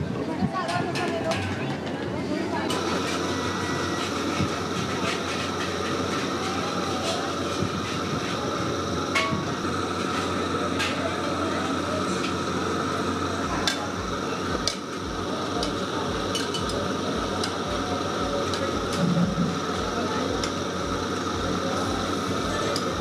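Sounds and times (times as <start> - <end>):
background hubbub: 0.0 - 23.0
metal utensils and dishes clinking: 16.3 - 16.8.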